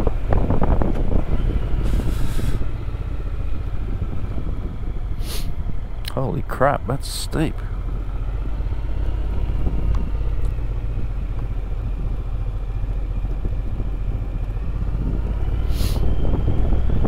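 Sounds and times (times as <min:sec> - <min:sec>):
motorcycle engine rumble: 0:00.0 - 0:17.0
brief hiss: 0:15.7 - 0:16.0.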